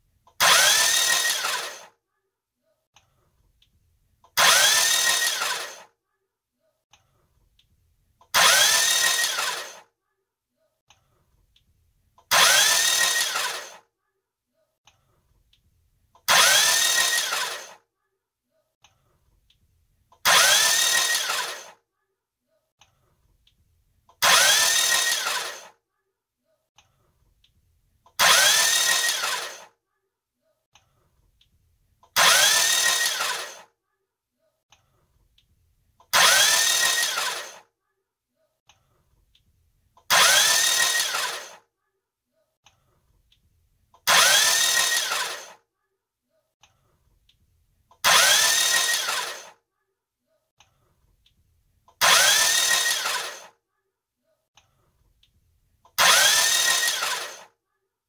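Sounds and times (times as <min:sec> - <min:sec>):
starter motor whine: 0:00.3 - 0:01.9, 0:04.4 - 0:05.9, 0:08.3 - 0:09.8, 0:12.3 - 0:13.8, 0:16.2 - 0:17.8, 0:20.2 - 0:21.8, 0:24.2 - 0:25.7, 0:28.2 - 0:29.7, 0:32.1 - 0:33.7, 0:36.1 - 0:37.6, 0:40.1 - 0:41.6, 0:44.0 - 0:45.6, 0:48.0 - 0:49.6, 0:52.0 - 0:53.5, 0:56.0 - 0:57.5
engine cranking on starter: 0:00.4 - 0:01.9, 0:04.4 - 0:05.9, 0:08.3 - 0:09.8, 0:12.3 - 0:13.8, 0:16.2 - 0:17.8, 0:20.2 - 0:21.8, 0:24.2 - 0:25.7, 0:28.2 - 0:29.7, 0:32.1 - 0:33.7, 0:36.1 - 0:37.7, 0:40.1 - 0:41.6, 0:44.0 - 0:45.6, 0:48.0 - 0:49.6, 0:52.0 - 0:53.5, 0:56.0 - 0:57.5.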